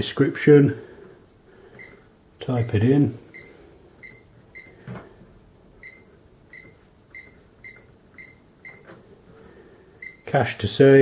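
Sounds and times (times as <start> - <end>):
cash register key beeps: 5.8 - 9.0.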